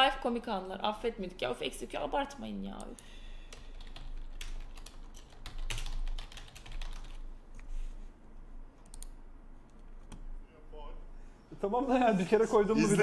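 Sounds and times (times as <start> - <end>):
typing on a keyboard: 3.5 - 7.2.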